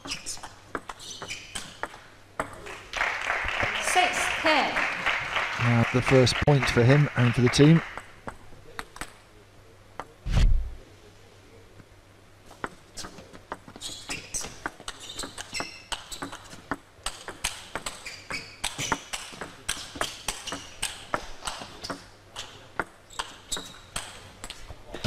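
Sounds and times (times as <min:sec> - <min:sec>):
table tennis ball hitting rackets and table: 0:00.0 - 0:02.9, 0:07.6 - 0:09.2, 0:12.5 - 0:24.8
short high squeaks: 0:01.0 - 0:01.8, 0:13.8 - 0:16.4, 0:17.9 - 0:19.0.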